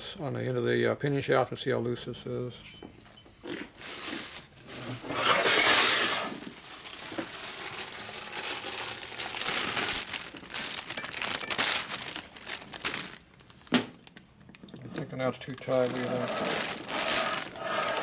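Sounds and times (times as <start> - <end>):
rustling handling noise: 3.7 - 18.0.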